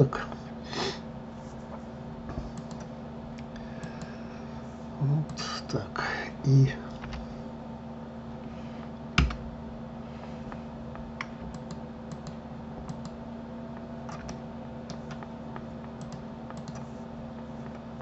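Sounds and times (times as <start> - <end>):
faint electrical hum: 0.0 - 18.0
computer keyboard and mouse clicks: 2.5 - 2.9, 11.2 - 13.2, 14.0 - 16.9.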